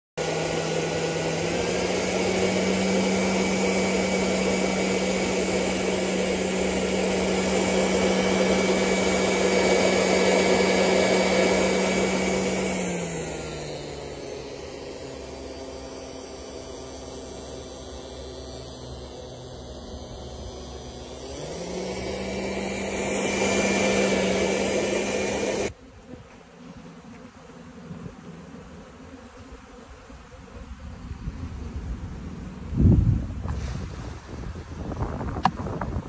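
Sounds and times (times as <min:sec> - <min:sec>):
pulse-jet engine drone and hiss: 0:00.2 - 0:25.8.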